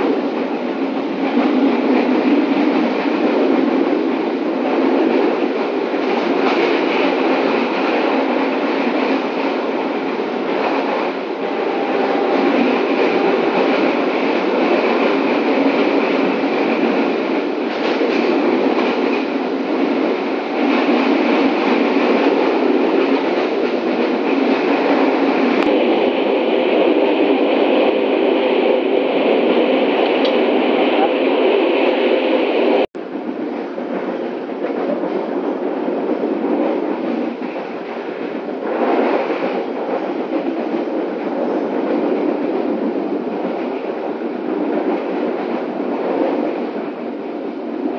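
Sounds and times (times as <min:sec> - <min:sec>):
train wheels on rails: 0:00.0 - 0:47.9.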